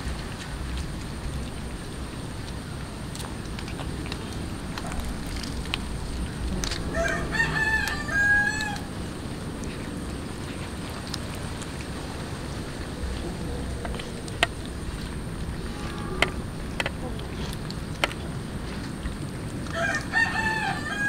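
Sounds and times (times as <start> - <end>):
cats chewing: 0.0 - 20.8
rooster crowing: 6.8 - 9.0, 19.7 - 21.0.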